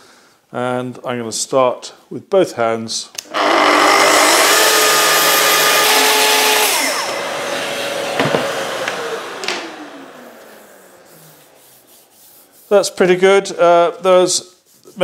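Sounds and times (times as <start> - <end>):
dust extractor running: 3.3 - 11.6
saw motor winding down: 3.3 - 11.6
circular saw cutting wood: 3.3 - 13.2
sharp knocks: 8.2 - 8.5.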